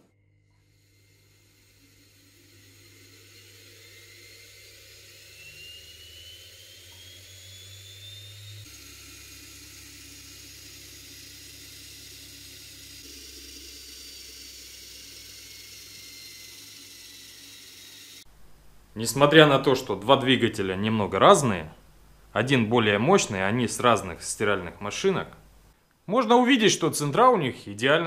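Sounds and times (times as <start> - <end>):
high electric motor whine: 0.0 - 18.3.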